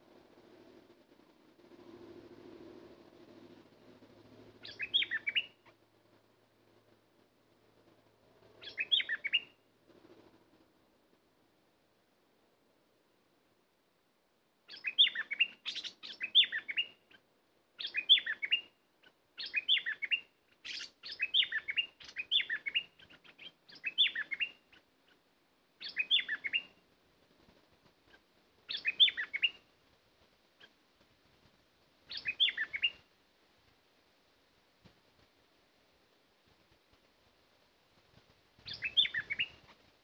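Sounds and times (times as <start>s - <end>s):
bulbul singing: 4.6s - 5.6s, 19.4s - 24.6s, 25.8s - 26.7s, 28.7s - 29.6s, 32.1s - 33.0s, 38.6s - 39.7s.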